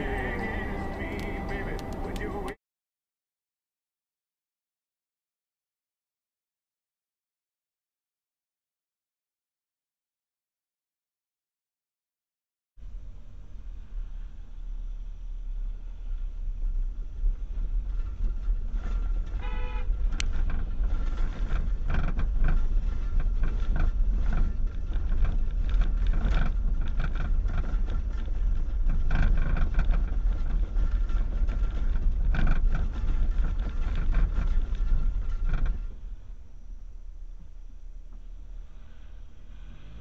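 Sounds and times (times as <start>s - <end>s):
vehicle interior rumble: 0.0s - 2.6s, 12.8s - 40.0s
knocks and rattles: 17.2s - 36.3s
car horn toot: 19.4s - 20.0s.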